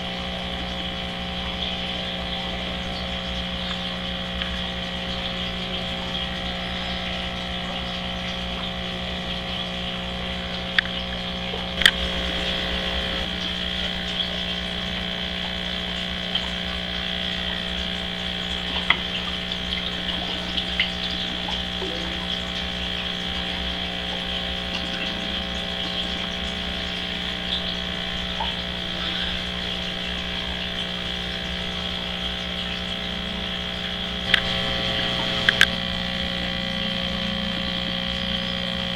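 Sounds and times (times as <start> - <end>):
aquarium pumps humming: 0.0 - 38.9
short clicks: 35.2 - 35.8.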